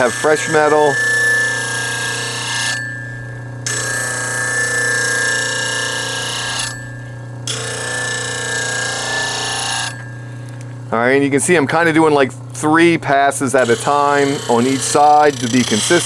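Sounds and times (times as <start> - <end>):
steel grinding on wheel: 0.0 - 10.2, 13.4 - 16.0
bench grinder motor hum: 0.0 - 10.7, 13.4 - 16.0.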